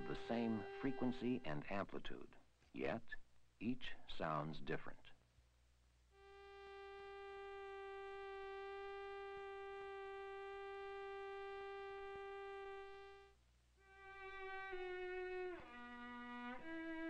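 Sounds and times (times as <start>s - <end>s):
synthesizer sawtooth tone: 0.0s - 1.7s, 6.2s - 13.3s
bowed string note: 0.0s - 1.8s, 6.2s - 13.2s.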